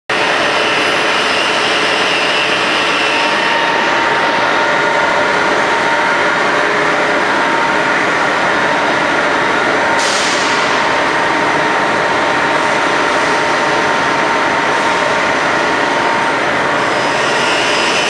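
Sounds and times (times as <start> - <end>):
factory machinery din: 0.1 - 18.0
faint steady machine whines: 0.1 - 18.0.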